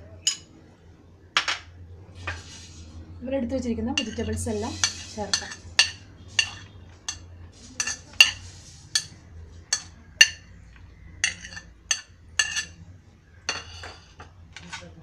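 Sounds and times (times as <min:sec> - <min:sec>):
spoon clinking on ceramic plate: 0:00.2 - 0:00.5, 0:04.0 - 0:10.5, 0:11.2 - 0:12.8, 0:13.5 - 0:14.2.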